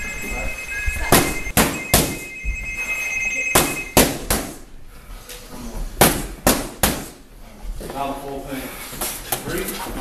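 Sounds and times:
two-pitch electronic ringing tone: 0.0s - 4.3s.

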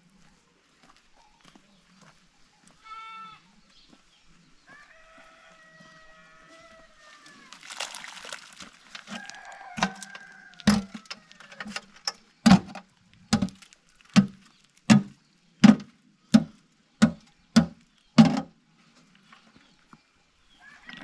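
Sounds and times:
metal pail clanking against rock: 9.8s - 18.5s.

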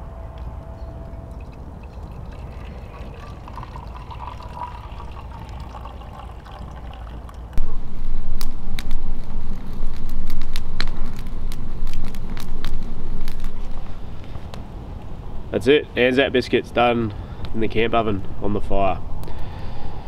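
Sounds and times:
liquid trickling into a mug: 1.2s - 7.6s
low rumble with crackles: 6.2s - 15.2s.

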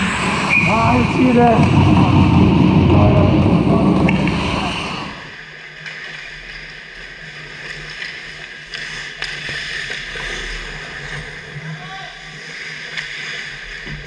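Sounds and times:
loud rumbling: 0.0s - 5.4s
steady hum: 0.0s - 5.7s
voices: 0.5s - 5.3s.

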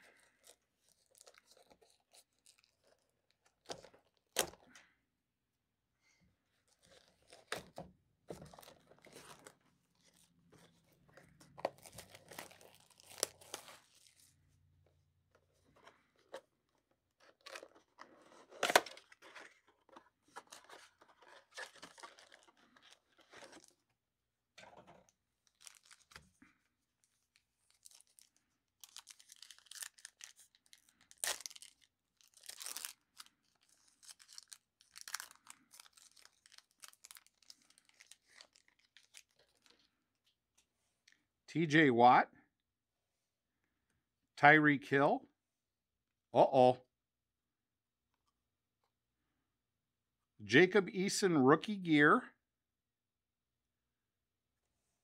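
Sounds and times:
packaging tearing and crinkling: 0.4s - 3.1s, 11.6s - 14.2s, 20.3s - 23.7s, 25.4s - 26.2s, 27.3s - 39.8s
foil card packs ripping: 11.6s - 14.2s, 25.5s - 26.2s, 27.7s - 39.7s.

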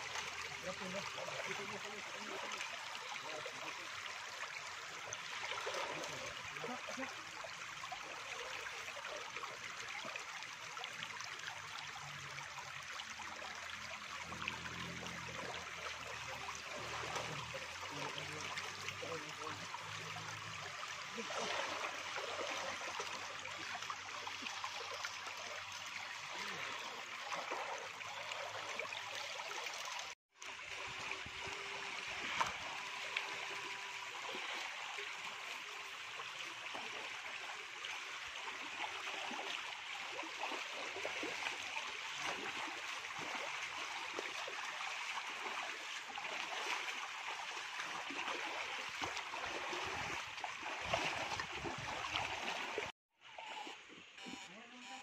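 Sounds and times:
river water flowing: 0.0s - 54.3s.

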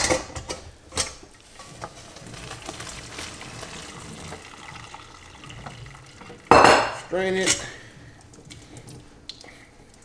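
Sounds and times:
water running into metal sink: 1.5s - 9.0s.

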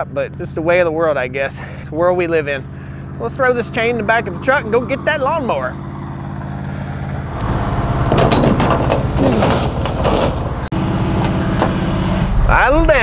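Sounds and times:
truck engine idling: 0.0s - 12.0s
steel chain clanking: 8.1s - 10.7s.

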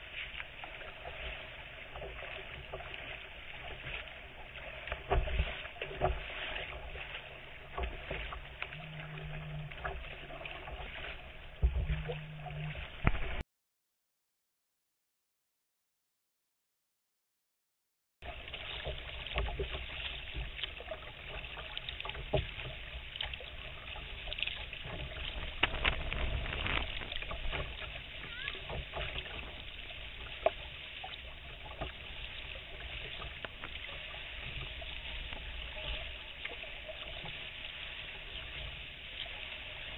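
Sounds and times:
water lapping and splashing: 0.0s - 13.4s, 18.2s - 39.9s
low rumble: 8.7s - 13.4s.

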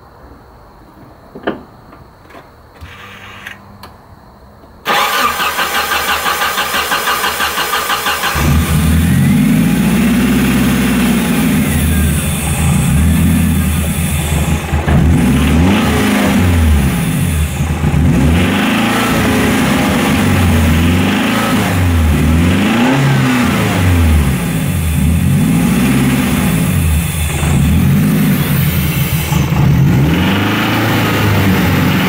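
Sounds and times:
starter cranking engine: 4.9s - 9.2s
car engine revving: 4.9s - 32.0s.

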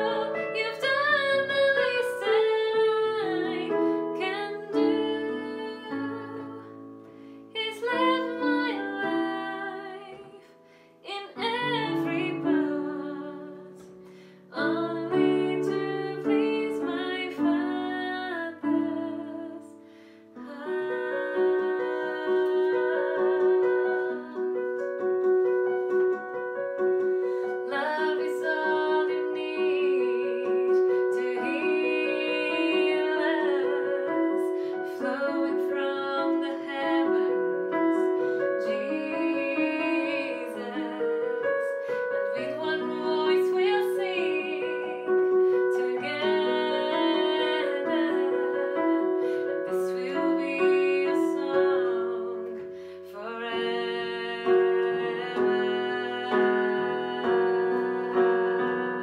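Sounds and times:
woman singing with vibrato: 0.0s - 6.8s, 7.5s - 13.8s, 14.4s - 19.8s, 20.4s - 24.8s, 27.3s - 59.0s
digital piano chords: 0.0s - 59.0s.

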